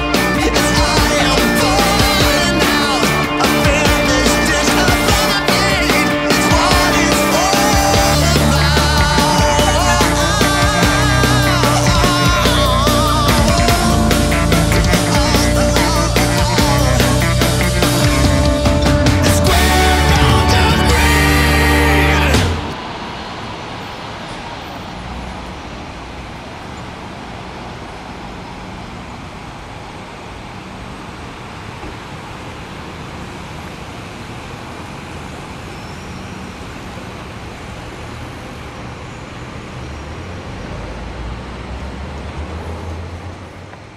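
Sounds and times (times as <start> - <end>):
music: 0.0 - 22.8
city traffic noise: 0.0 - 43.9.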